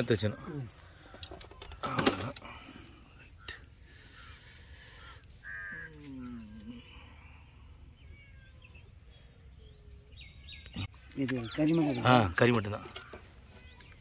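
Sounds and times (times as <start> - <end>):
faint bird chirps: 0.0 - 14.0
crow cawing: 3.9 - 6.3, 12.8 - 13.8.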